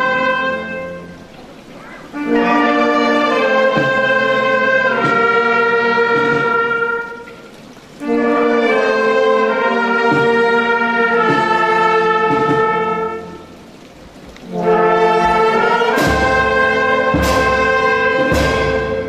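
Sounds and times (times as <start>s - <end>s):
brass music long held chords: 0.0s - 1.3s, 2.1s - 13.8s, 14.4s - 19.0s.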